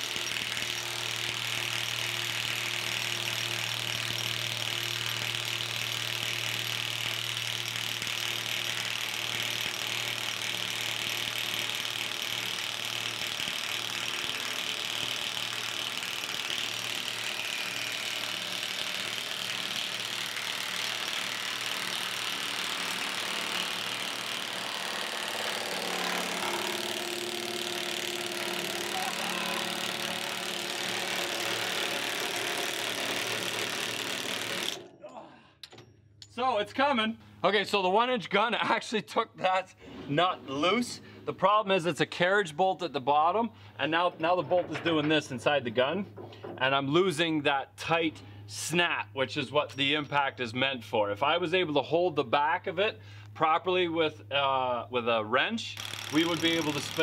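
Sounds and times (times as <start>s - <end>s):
impact wrench hammering: 0.0s - 34.9s, 55.8s - 57.0s.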